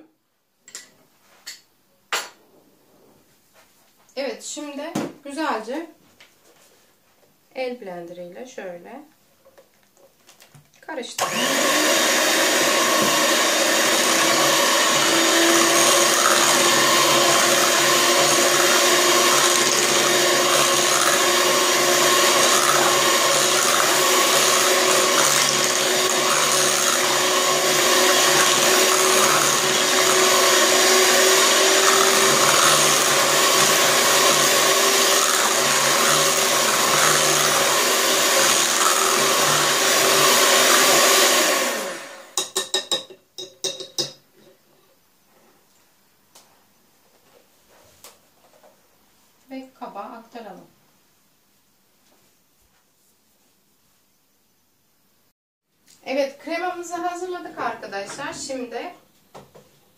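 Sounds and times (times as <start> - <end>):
electric hand mixer running: 11.2 - 42.4.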